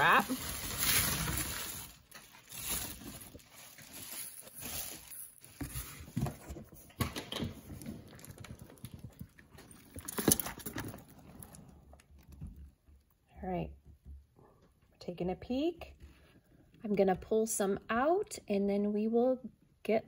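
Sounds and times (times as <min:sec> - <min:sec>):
bubble wrap and cardboard rustling: 0:00.0 - 0:12.7.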